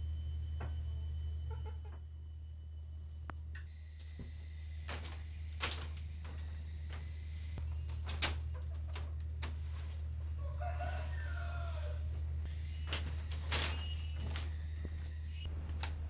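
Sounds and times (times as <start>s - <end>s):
steady low hum: 0.0s - 16.0s
chickens clucking: 7.9s - 13.0s
rooster crowing: 10.4s - 12.2s.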